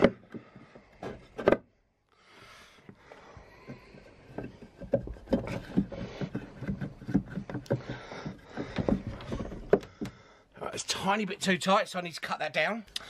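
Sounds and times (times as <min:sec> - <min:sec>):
wooden knocks and scrapes: 0:00.0 - 0:01.7, 0:02.8 - 0:10.8.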